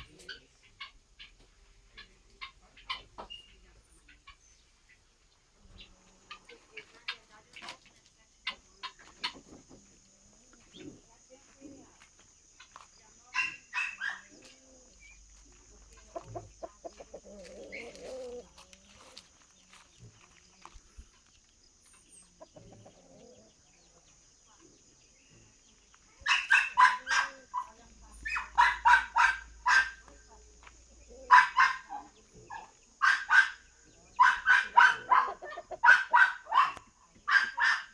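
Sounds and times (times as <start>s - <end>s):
chickens clucking and calling: 0.0s - 11.1s, 12.4s - 37.9s
dog barking: 13.4s - 14.3s, 26.2s - 30.1s, 31.2s - 33.6s, 34.2s - 37.9s.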